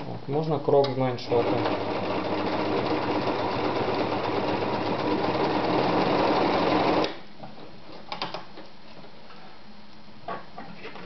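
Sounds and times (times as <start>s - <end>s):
sewing machine running: 1.3s - 7.1s.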